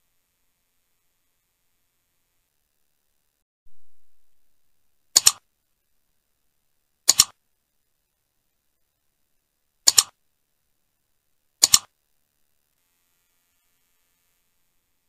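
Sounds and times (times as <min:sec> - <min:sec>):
mouse double clicks: 0:05.2 - 0:05.4, 0:07.1 - 0:07.4, 0:09.8 - 0:10.2, 0:11.6 - 0:11.9.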